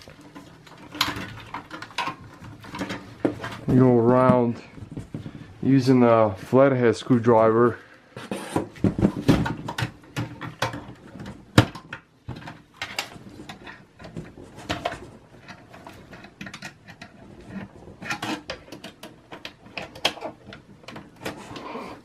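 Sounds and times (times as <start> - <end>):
cables rustling: 0.0 - 8.0.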